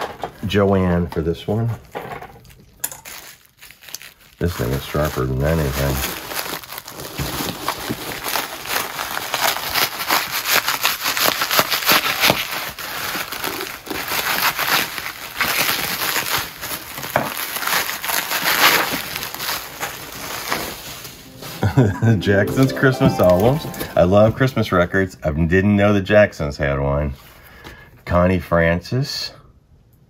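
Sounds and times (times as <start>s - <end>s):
bubble wrap crinkling and crackling: 1.5s - 21.9s.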